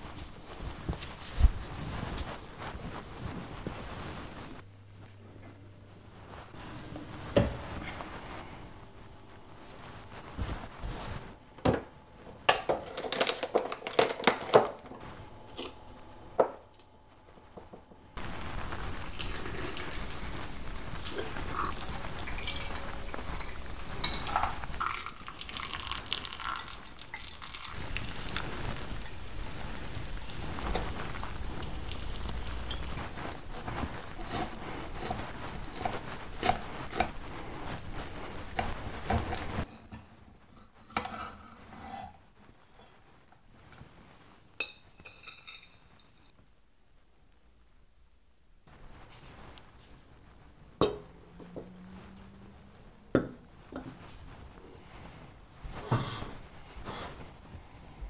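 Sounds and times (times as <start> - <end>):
water pouring hiss: 18.6 - 33.0.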